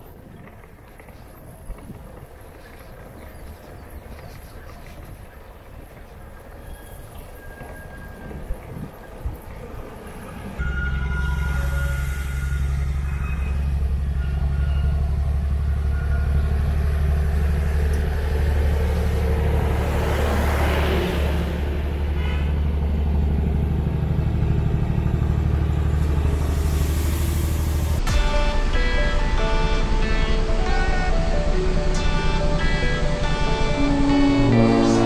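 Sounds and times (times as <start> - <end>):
truck passing: 0.0 - 35.0
low engine drone: 9.2 - 35.0.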